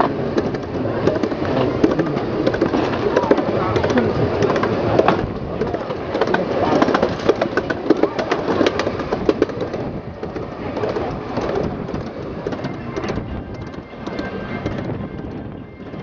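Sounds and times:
miniature train wheels clattering: 0:00.0 - 0:16.0.

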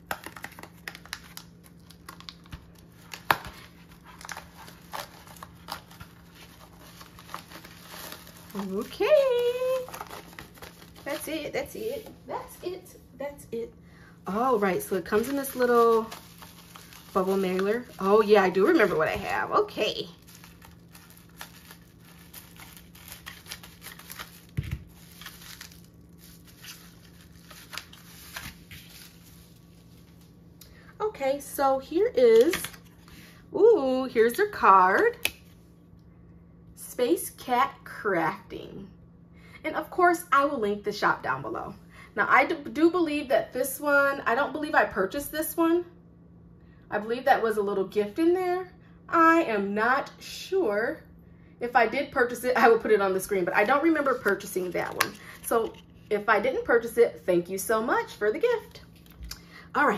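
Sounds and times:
plastic mailer crinkling: 0:00.0 - 0:12.1, 0:14.3 - 0:30.3.

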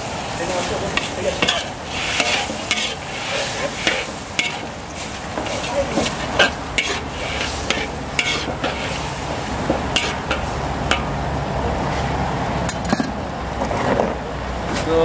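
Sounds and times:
sauce sizzling: 0:00.0 - 0:11.6
metal ladle scraping a wok: 0:00.5 - 0:11.2.

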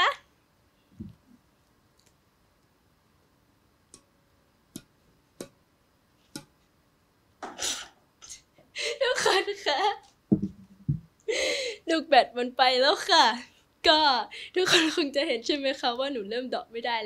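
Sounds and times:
shuttlecock tapping on racket strings: 0:04.7 - 0:05.6, 0:06.3 - 0:06.6.

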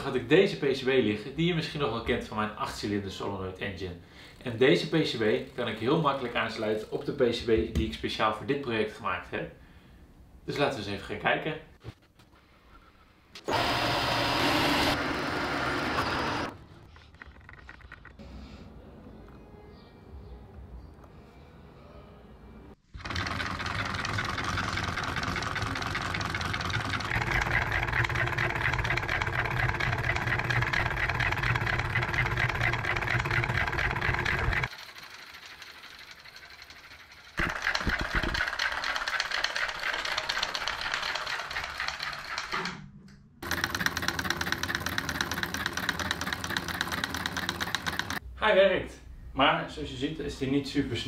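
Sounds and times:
solenoid engine clattering: 0:23.0 - 0:42.8, 0:43.4 - 0:48.2.

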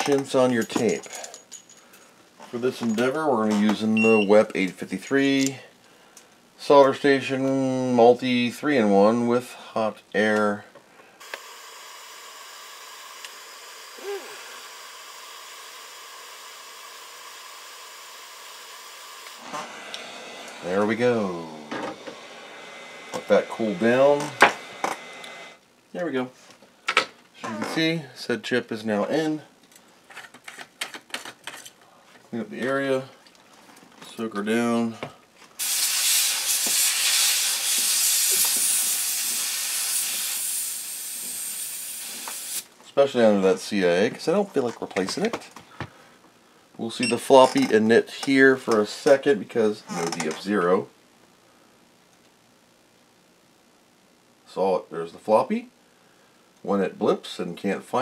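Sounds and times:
hot-air tool hissing: 0:11.2 - 0:25.6, 0:35.6 - 0:42.7
aerosol spray hissing: 0:35.6 - 0:42.6.

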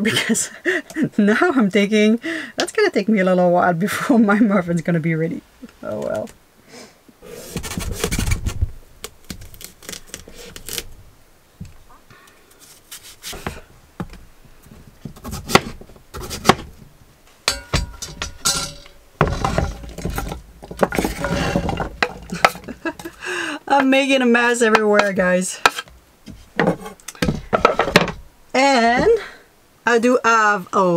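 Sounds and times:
knife chopping on wooden board: 0:15.2 - 0:16.7
food clattering into a pot: 0:17.5 - 0:23.1.

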